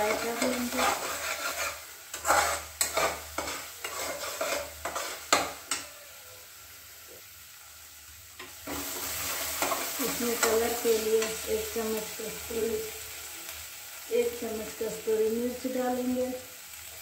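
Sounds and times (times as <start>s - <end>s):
metal spatula scraping a pot: 0.0s - 5.8s
paste sizzling in a pot: 0.0s - 17.0s.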